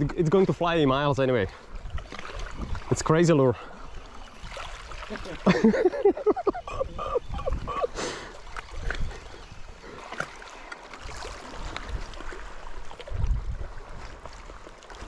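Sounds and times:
water lapping on rocks: 0.0 - 15.0
wind on microphone: 1.7 - 2.9, 6.5 - 8.0, 11.0 - 14.5.

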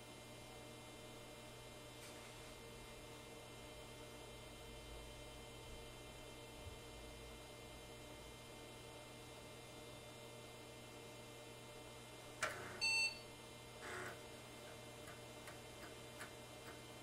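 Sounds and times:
computer power click: 12.4 - 13.2
short electronic beep: 12.8 - 13.2.

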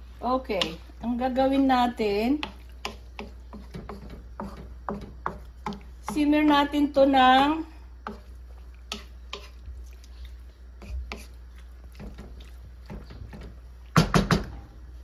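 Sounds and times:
wooden spoon stirring in a wok: 0.0 - 14.2
knocks against a pan: 12.9 - 14.6.

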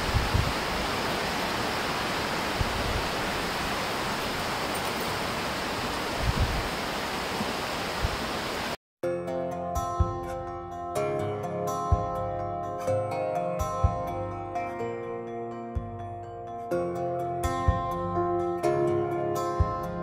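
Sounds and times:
stream rushing: 0.0 - 8.8
gentle music: 9.0 - 20.0.

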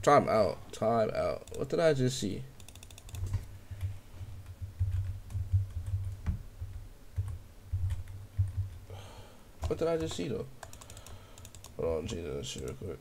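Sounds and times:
computer keyboard clicking: 2.6 - 3.4, 4.4 - 8.8, 9.6 - 12.9.

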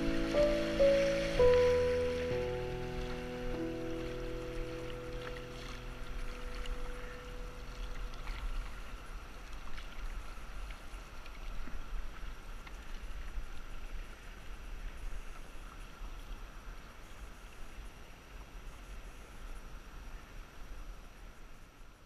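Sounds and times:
piano note: 0.0 - 8.8
water lapping against hull: 0.0 - 14.3.

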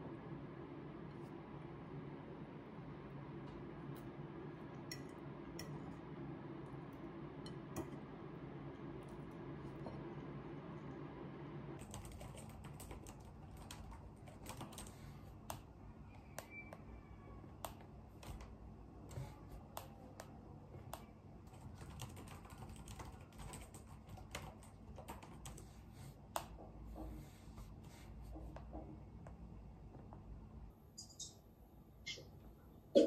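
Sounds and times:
laptop keyboard typing: 11.8 - 16.8, 17.6 - 26.5.

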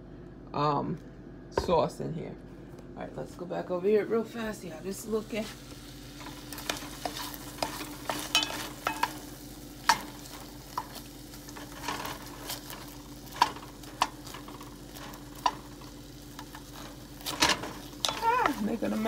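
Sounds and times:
peppers sizzling in a pot: 4.3 - 19.0.

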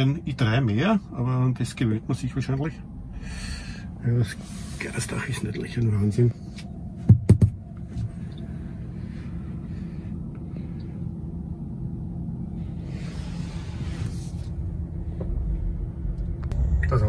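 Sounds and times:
road and tyre rumble: 0.0 - 17.0
sharp knocks: 7.0 - 7.6.

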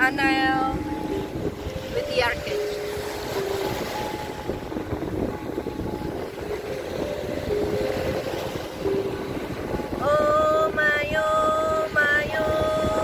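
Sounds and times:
steel tongue drum notes: 0.0 - 13.0
wind on microphone: 0.0 - 13.0.

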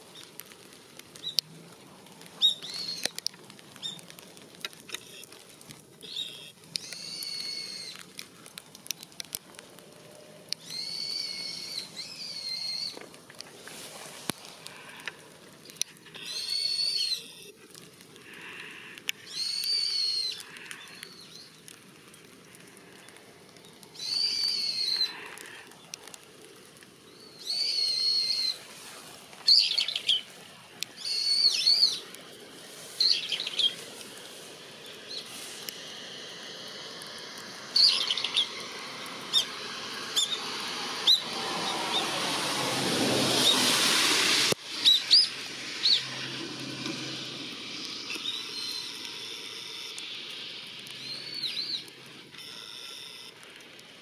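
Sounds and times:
kites whistled calls: 2.4 - 3.2, 6.0 - 8.0, 10.6 - 13.0, 16.2 - 17.6, 19.2 - 21.6, 24.0 - 25.6, 27.1 - 36.6, 37.2 - 42.3, 43.4 - 46.4, 47.8 - 53.3
rush of noise: 32.0 - 48.3.

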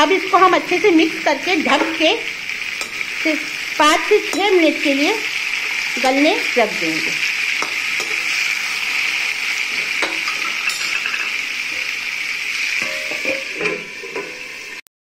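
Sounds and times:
food sizzling in oil: 0.0 - 14.8
metal spoon scraping a pan: 1.6 - 6.3, 7.2 - 11.9, 12.6 - 14.8
steel lid clinking onto pan: 10.0 - 11.4, 12.8 - 14.4.

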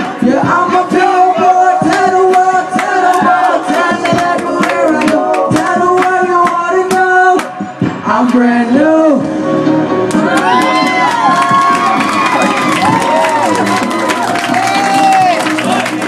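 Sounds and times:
man rapping into a microphone: 0.0 - 9.3
hip-hop song: 0.0 - 16.0.

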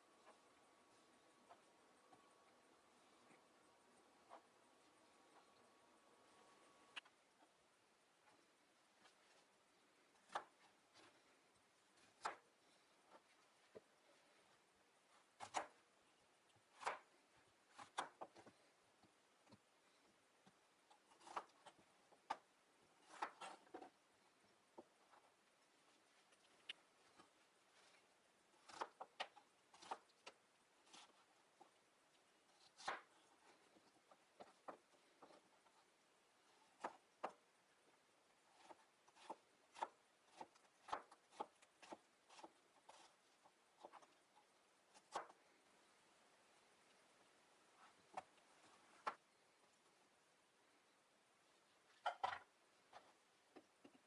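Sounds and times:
knife slicing cucumber: 28.6 - 29.1.

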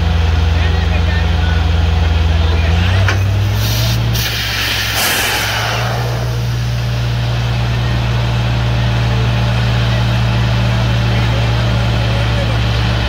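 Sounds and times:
drilling rig engine drone: 0.0 - 13.0
air compressor hiss: 3.4 - 7.0.

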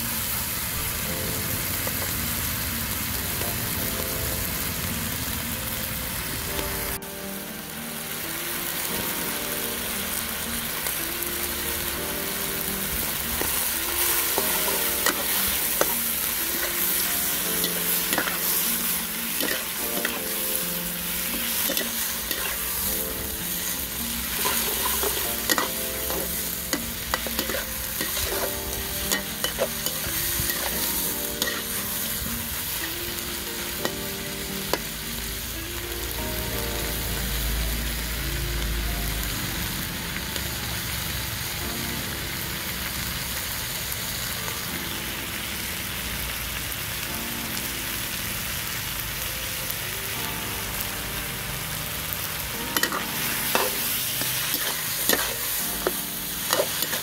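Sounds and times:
food sizzling in a wok: 0.0 - 57.0
metal spatula scraping and clanking: 24.3 - 28.5, 52.8 - 57.0.

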